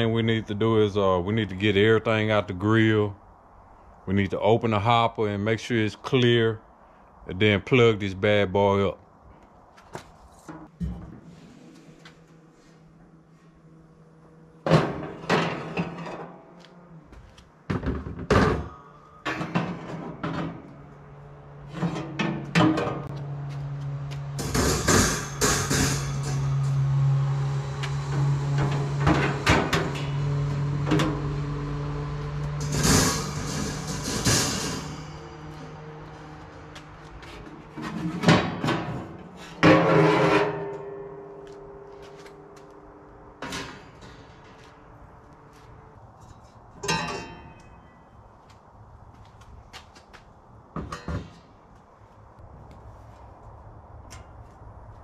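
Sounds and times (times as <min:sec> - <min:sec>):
metal knocks and clanks: 0:14.6 - 0:16.6, 0:17.6 - 0:48.1, 0:50.7 - 0:51.7.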